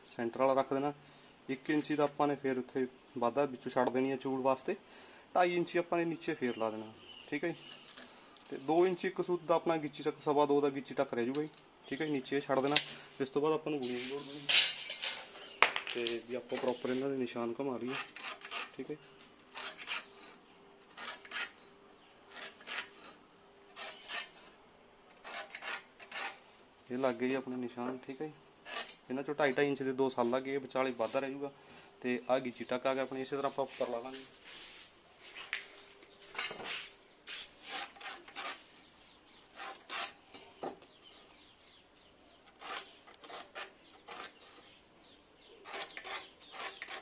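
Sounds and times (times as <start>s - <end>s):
try square sliding on wood: 22.3s - 23.1s
pencil scratching on wood: 36.6s - 38.6s, 42.5s - 44.6s, 45.6s - 47.0s
pen scratching on wood: 45.6s - 47.0s.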